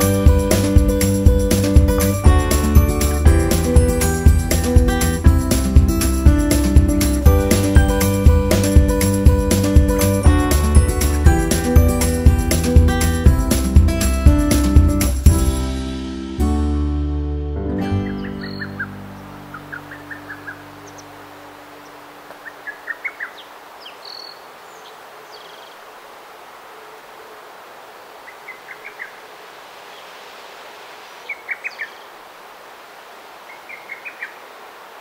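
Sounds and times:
steady outdoor hiss: 0:00.0 - 0:16.4, 0:17.9 - 0:35.0
background music chord: 0:00.0 - 0:22.0
songbird singing: 0:17.9 - 0:35.0.

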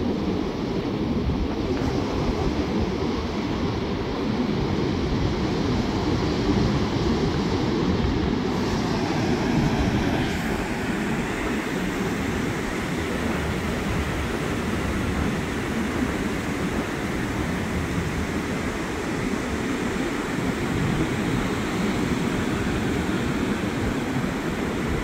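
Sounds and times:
ocean surf washing on beach: 0:00.0 - 0:25.0.

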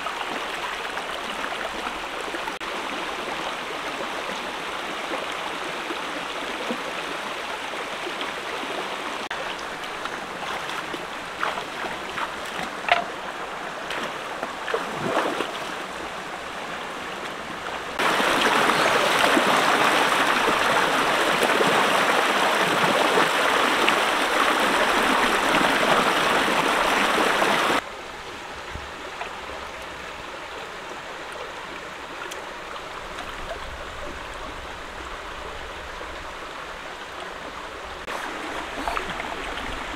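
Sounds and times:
shallow stream flowing: 0:00.0 - 0:39.9
water cascading over rocks: 0:00.0 - 0:39.9
small water splashes: 0:08.6 - 0:13.2, 0:13.8 - 0:16.0, 0:38.0 - 0:39.9.

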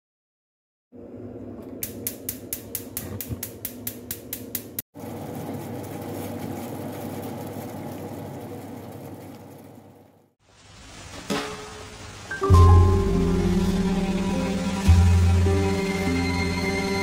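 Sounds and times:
gas igniter clicking: 0:01.8 - 0:04.8.

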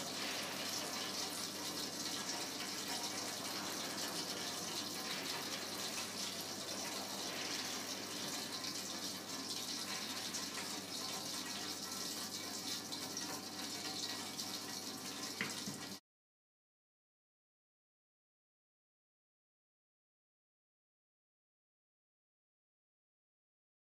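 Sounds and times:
kitchen background hiss: 0:00.0 - 0:16.0.

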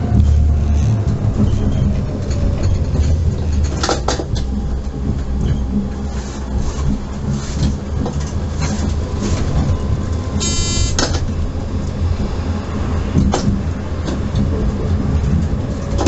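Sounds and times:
tram rumbling on rails: 0:00.0 - 0:16.0
wheels clicking and hissing on track: 0:00.0 - 0:16.0
brief buzzing tone: 0:10.4 - 0:11.0.

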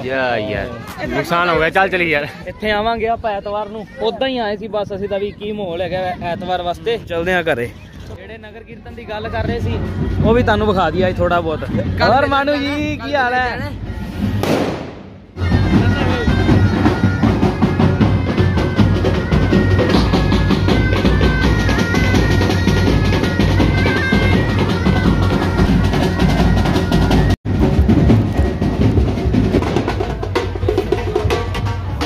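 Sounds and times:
bass drums and drum rolls: 0:09.3 - 0:32.0
bagpipes melody: 0:15.4 - 0:27.4.

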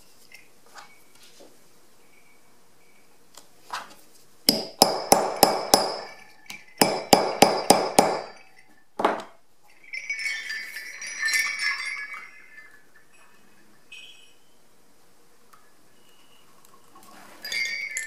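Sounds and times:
hammer striking rivet setter: 0:04.5 - 0:06.1, 0:06.8 - 0:08.4
sleigh bells jingling: 0:09.6 - 0:13.8, 0:17.4 - 0:18.0.

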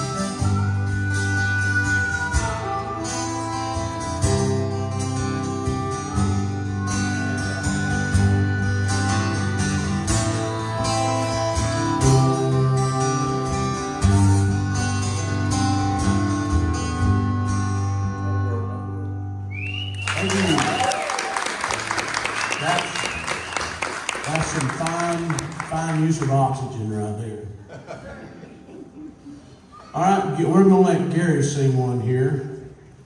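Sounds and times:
harmonica melody: 0:00.0 - 0:19.5
acoustic guitars strumming: 0:00.0 - 0:20.6.

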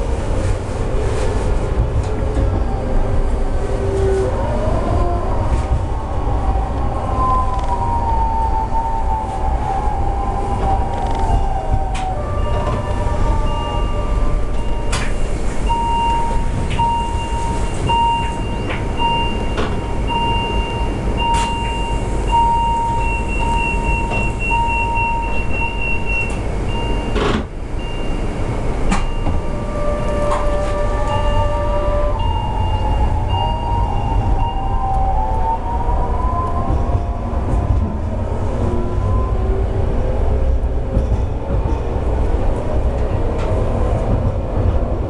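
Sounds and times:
electric railcar motor whine: 0:02.3 - 0:41.0
level crossing warning beeps: 0:12.4 - 0:34.8.

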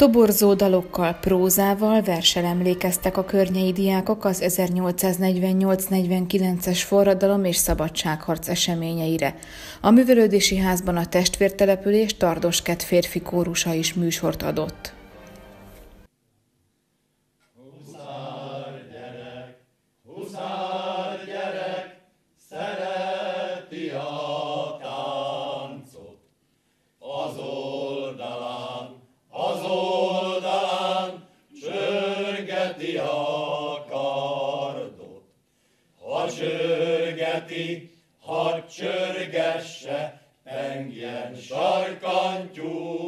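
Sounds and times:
male choir singing folk song: 0:00.0 - 0:04.5, 0:17.6 - 0:26.3, 0:27.0 - 0:35.4, 0:36.0 - 0:43.0.

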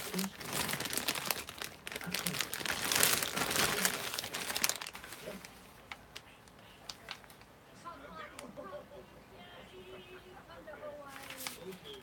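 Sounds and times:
packaging crinkling and rustling: 0:00.0 - 0:07.5, 0:11.1 - 0:12.0.

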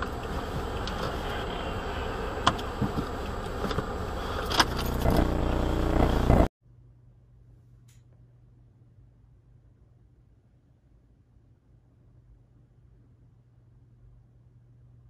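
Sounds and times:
low rumble inside car: 0:00.0 - 0:06.5
faint low hum: 0:00.0 - 0:15.0.

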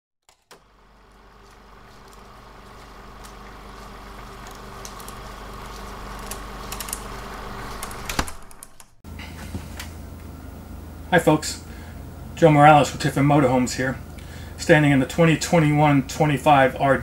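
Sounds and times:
mechanical whirring: 0:00.3 - 0:09.0.

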